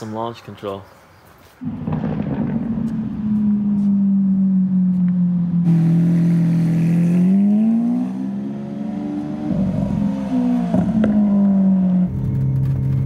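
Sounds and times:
car engine driving by: 0:01.6 - 0:13.0.

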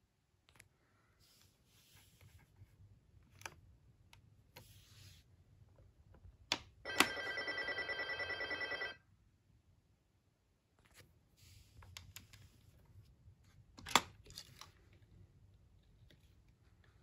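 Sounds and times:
toy telephone electronic ringing: 0:06.8 - 0:09.0.

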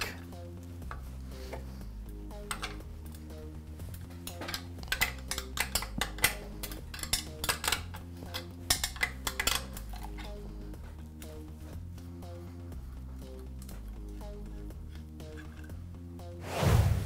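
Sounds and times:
wrench clinking against metal fitting: 0:04.2 - 0:10.4.

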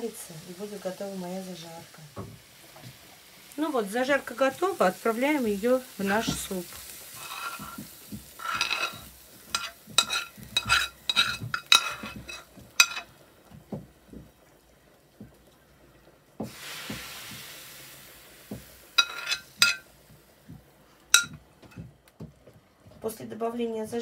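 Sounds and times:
metal spoon clinking on pan: 0:08.4 - 0:13.1, 0:19.0 - 0:19.8, 0:21.1 - 0:21.4
brief hiss: 0:16.4 - 0:18.2.

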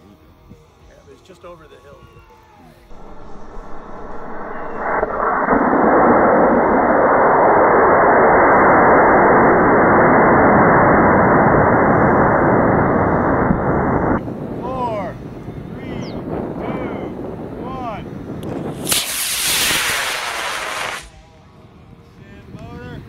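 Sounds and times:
rocket motor burning: 0:02.9 - 0:15.5, 0:18.2 - 0:21.2.

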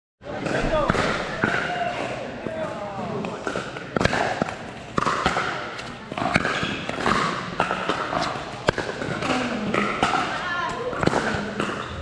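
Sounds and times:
paddle striking ball: 0:03.2 - 0:11.9.

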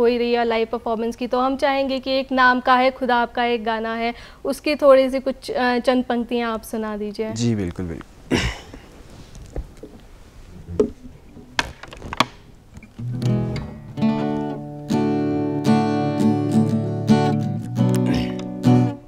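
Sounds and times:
acoustic guitar plucks and taps: 0:10.8 - 0:15.8, 0:16.6 - 0:18.9
acoustic guitar strummed chords: 0:12.9 - 0:19.0.

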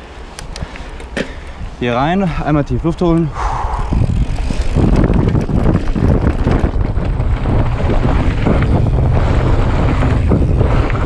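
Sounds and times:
wind rushing on microphone: 0:01.5 - 0:11.0
bike rattling over rocks: 0:03.9 - 0:11.0.

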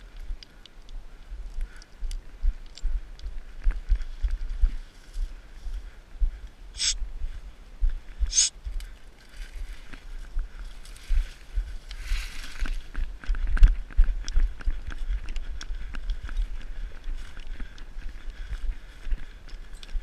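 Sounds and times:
footsteps on stony ground: 0:00.0 - 0:20.0.

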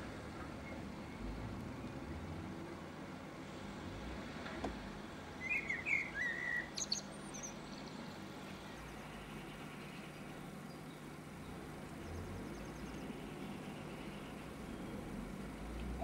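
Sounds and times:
street traffic hum: 0:00.0 - 0:16.0
small bird chirping: 0:05.4 - 0:08.0.

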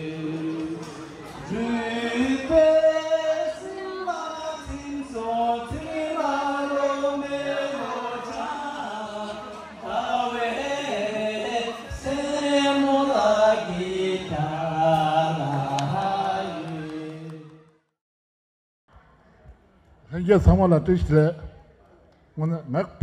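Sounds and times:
men singing unaccompanied: 0:00.0 - 0:17.6.

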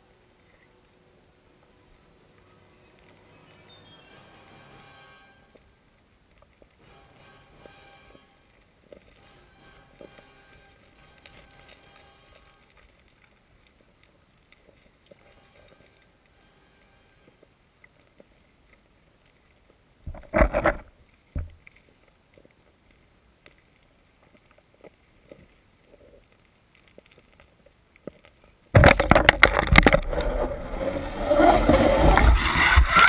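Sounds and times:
small underwater knocks: 0:20.0 - 0:21.8
heavy rumbling handling noise: 0:28.8 - 0:33.0.

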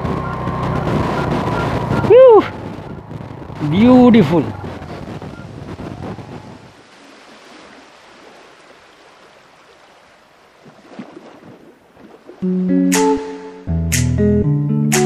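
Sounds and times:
wind: 0:00.0 - 0:12.5
music with plucked guitar: 0:12.4 - 0:15.0.

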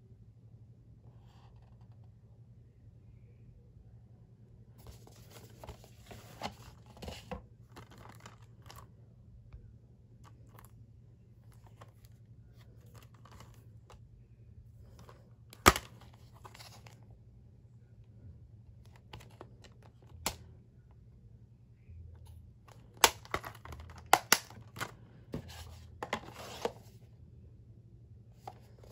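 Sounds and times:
plastic case rustling and scraping: 0:04.8 - 0:08.9, 0:11.4 - 0:13.9, 0:14.8 - 0:17.0, 0:22.7 - 0:27.0
plastic case snapping open: 0:15.0 - 0:16.8, 0:22.7 - 0:25.0.

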